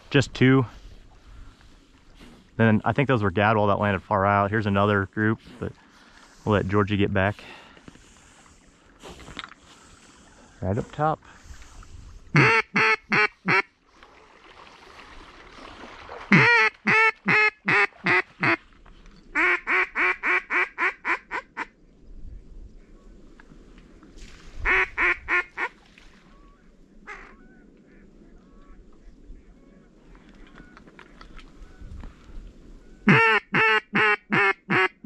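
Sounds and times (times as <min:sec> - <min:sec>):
duck call quacks: 0:12.4 - 0:13.7, 0:16.3 - 0:18.6, 0:19.4 - 0:21.7, 0:24.7 - 0:25.7, 0:33.1 - 0:35.0.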